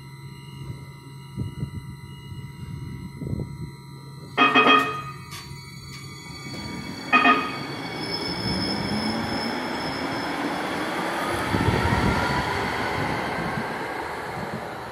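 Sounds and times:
train motor whine: 0:00.0 - 0:14.9
wheels rumbling on rail: 0:04.4 - 0:14.9.

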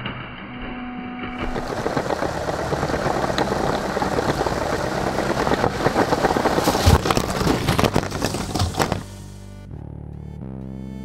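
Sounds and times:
thud with plastic pieces clattering: 0:06.5 - 0:09.2.

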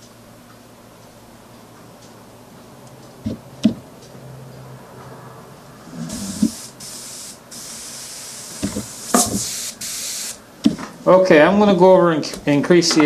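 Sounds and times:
airbrush hissing: 0:05.9 - 0:10.4.

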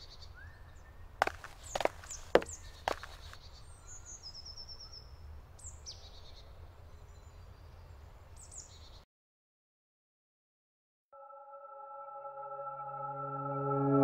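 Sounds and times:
songbirds calling: 0:00.0 - 0:09.0.

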